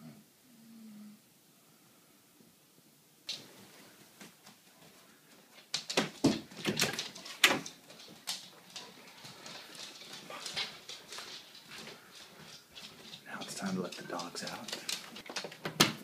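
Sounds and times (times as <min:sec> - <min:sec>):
dog claws clicking on hardwood floor: 0:05.5 - 0:16.0.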